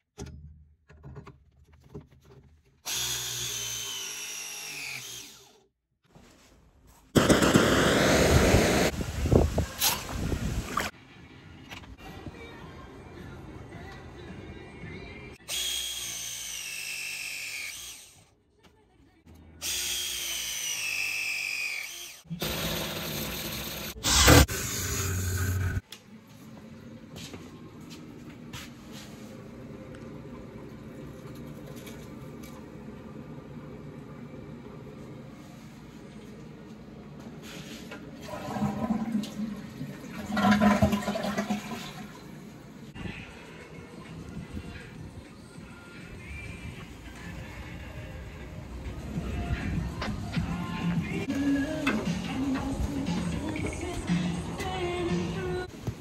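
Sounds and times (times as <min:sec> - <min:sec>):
toilet flushing: 0:38.2 - 0:42.8.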